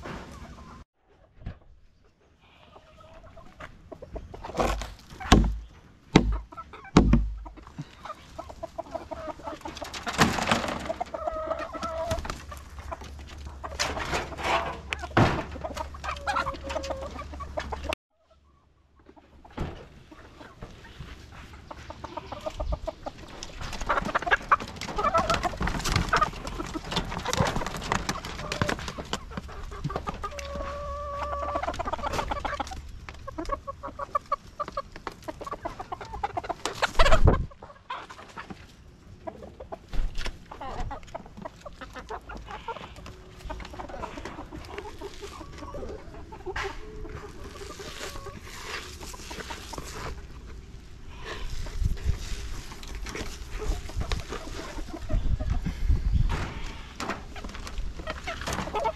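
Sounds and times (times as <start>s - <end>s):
hens clucking: 0.0s - 58.9s
scraping and handling noise: 12.0s - 17.8s, 42.7s - 54.8s.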